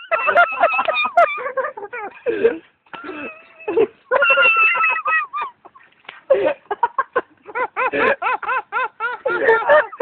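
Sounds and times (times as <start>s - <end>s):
person laughing hard: 0.0s - 10.0s.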